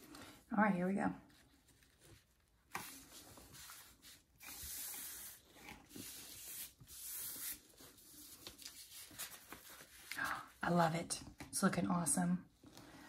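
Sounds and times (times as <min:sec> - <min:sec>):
hand rubbing paper: 0:01.4 - 0:10.2
paper crackling as folded: 0:06.0 - 0:10.3.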